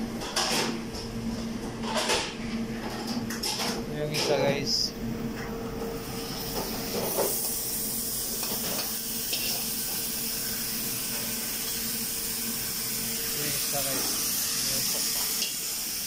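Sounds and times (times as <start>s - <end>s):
food sizzling on hot plate: 6.2s - 16.0s.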